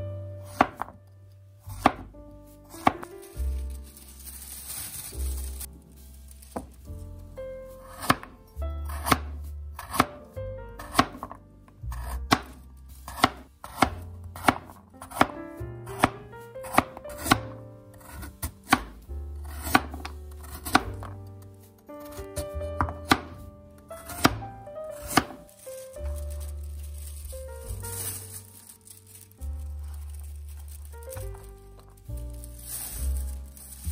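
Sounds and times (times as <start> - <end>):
soft background music: 0.0 - 33.9
knife chopping carrot on board: 0.5 - 1.0, 1.7 - 2.1, 2.8 - 3.1, 7.9 - 8.3, 8.9 - 10.2, 10.8 - 21.1, 22.0 - 23.4, 24.0 - 25.4.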